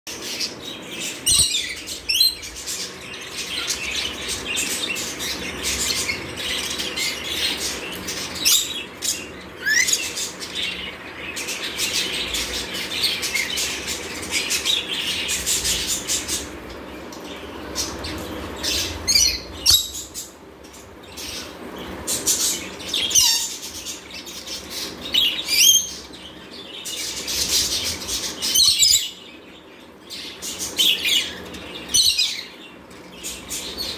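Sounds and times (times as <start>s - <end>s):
parrots screeching and chattering: 0.3s - 16.7s, 21.1s - 26.2s.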